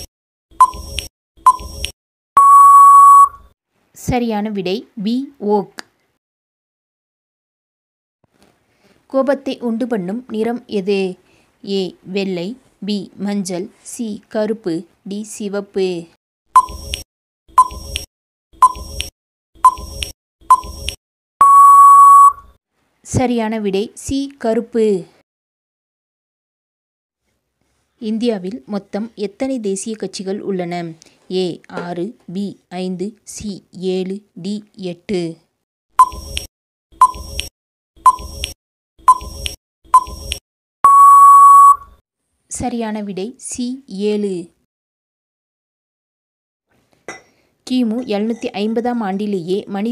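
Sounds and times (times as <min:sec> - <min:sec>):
short timer beeps: 0:00.6 - 0:03.4, 0:16.6 - 0:22.4, 0:36.0 - 0:42.0.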